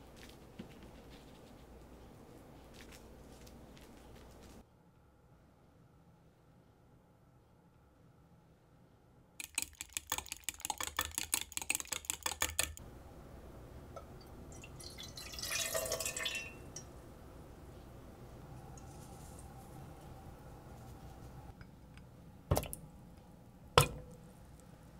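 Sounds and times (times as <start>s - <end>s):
milk pouring into saucepan: 14.0s - 16.8s.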